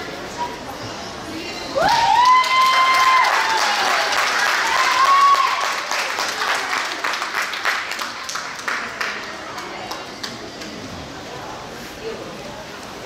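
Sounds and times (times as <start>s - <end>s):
high held whoop: 1.8s - 4.0s, 4.6s - 5.8s
spectators clapping and cheering: 1.8s - 10.9s.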